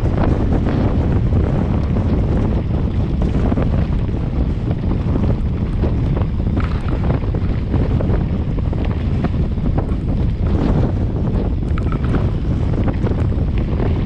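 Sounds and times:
wind buffeting microphone: 0.0 - 14.0
bike rattles and knocks: 4.8 - 10.4, 11.5 - 14.0.

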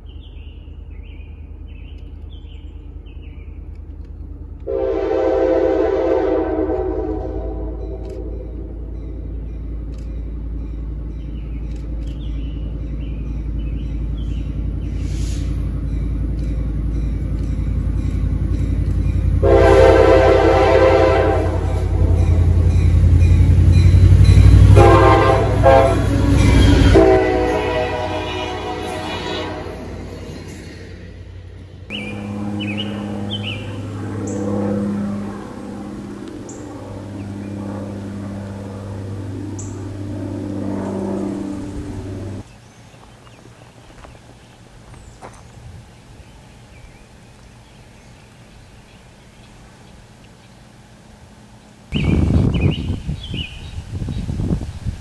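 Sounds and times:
birds chirping: 0.0 - 4.7, 6.8 - 55.0
diesel locomotive engine rumbling: 0.0 - 55.0
train air horn blast: 4.7 - 8.8, 19.4 - 22.5, 24.6 - 30.3, 31.9 - 42.4.

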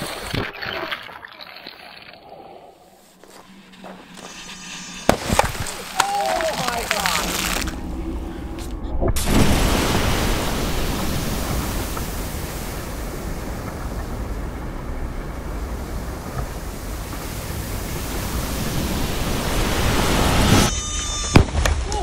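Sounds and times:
steady rushing noise: 3.3 - 20.7.

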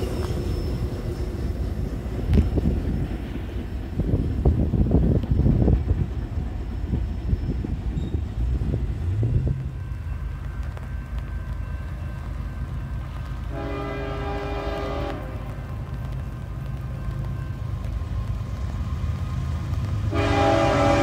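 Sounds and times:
train wheels clattering on rails: 0.0 - 21.0
train horn: 13.5 - 15.7, 20.1 - 21.0.

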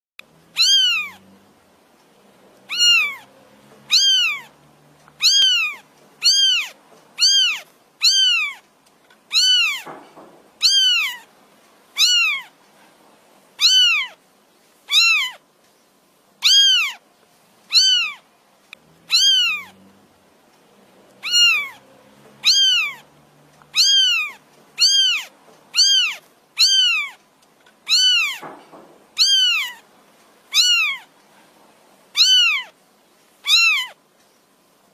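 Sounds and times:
kitten meowing: 0.6 - 1.2, 2.7 - 4.6, 5.2 - 8.6, 9.3 - 10.0, 10.6 - 11.3, 12.0 - 12.5, 13.6 - 14.2, 14.9 - 15.4, 16.4 - 17.0, 17.7 - 18.2, 19.1 - 19.8, 21.2 - 21.8, 22.4 - 27.2, 27.8 - 28.6, 29.2 - 29.8, 30.5 - 31.1, 32.2 - 32.8, 33.4 - 34.0.

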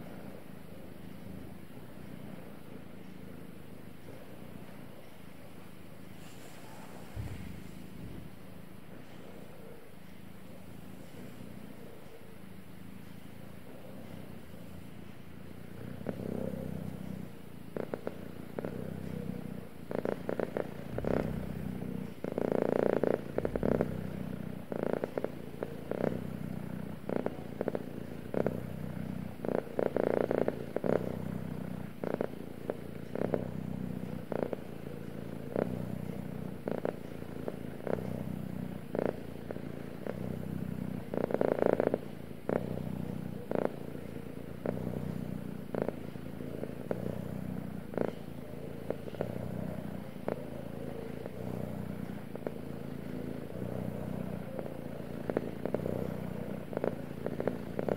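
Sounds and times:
cat purring: 0.0 - 57.9
soft rustles: 6.1 - 8.4.

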